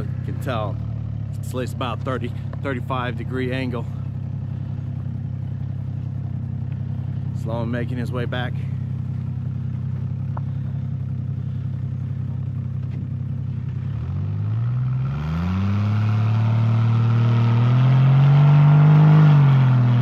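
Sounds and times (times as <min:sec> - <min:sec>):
engine idling and revving: 0:00.0 - 0:20.0.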